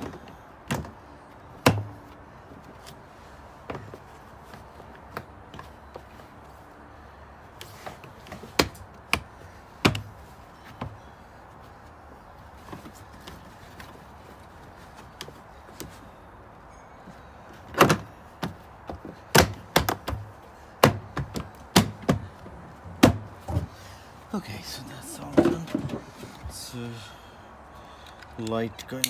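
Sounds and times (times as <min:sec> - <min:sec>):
plastic panel knocks and thumps: 0:17.8 - 0:23.7, 0:25.3 - 0:26.3.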